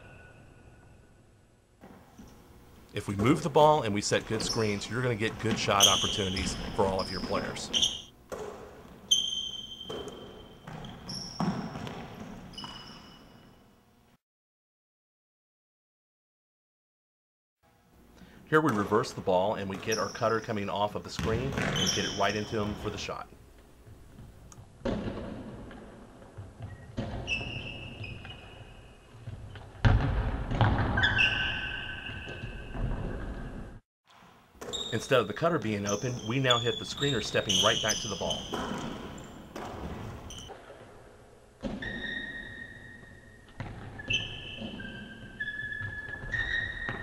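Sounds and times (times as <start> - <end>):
basketball and feet thudding: 1.8 - 2.3, 3.0 - 12.9, 18.6 - 23.2, 23.8 - 35.2, 36.6 - 40.9, 43.5 - 47.0
basketball bouncing on hardwood: 4.2 - 8.9, 9.8 - 12.8, 21.1 - 22.9, 29.2 - 31.2, 38.4 - 40.5, 43.6 - 44.8
sneaker squeaks on floor: 4.2 - 13.7, 19.6 - 23.0, 26.6 - 29.6, 30.6 - 33.5, 34.6 - 40.6, 41.6 - 47.0.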